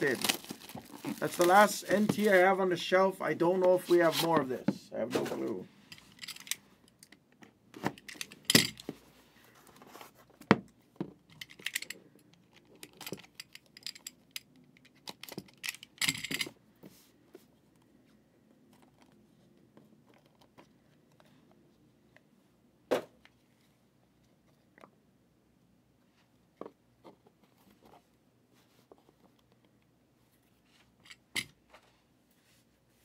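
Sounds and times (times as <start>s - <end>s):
cardboard rustle: 0.0s - 2.5s.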